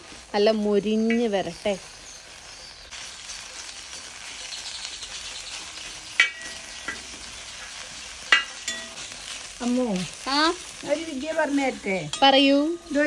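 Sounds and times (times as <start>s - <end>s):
leaves sizzling in a pan: 0.0s - 13.0s
spoon knocking against pan: 6.2s - 7.1s, 8.3s - 8.9s.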